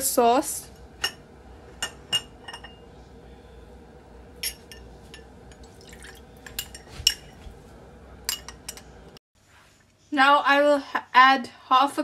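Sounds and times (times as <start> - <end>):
metal spoon clinking ceramic dishes: 1.8 - 2.8, 4.4 - 7.4, 8.3 - 9.0.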